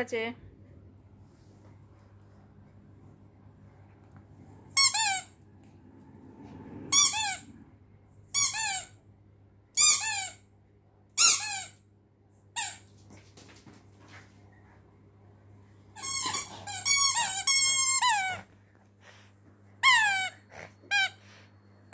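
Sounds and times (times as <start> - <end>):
squeaky dog toy squeaking: 4.8 - 5.4, 6.9 - 7.4, 8.3 - 8.9, 9.8 - 10.4, 11.2 - 11.8, 16.0 - 18.4, 19.8 - 21.2.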